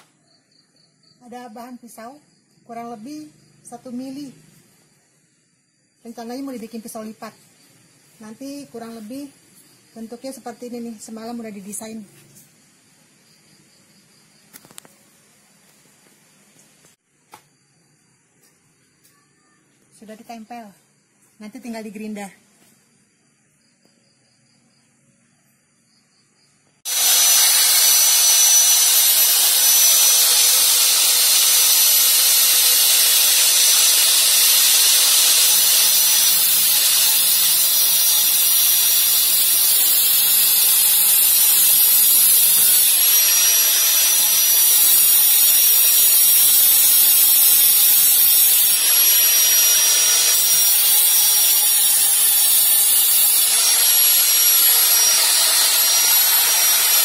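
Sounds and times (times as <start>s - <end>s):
angle grinder cutting steel: 26.9s - 57.0s.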